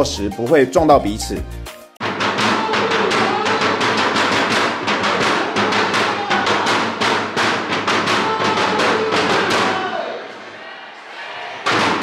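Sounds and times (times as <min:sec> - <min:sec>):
fast steady drumming: 0:02.0 - 0:09.8.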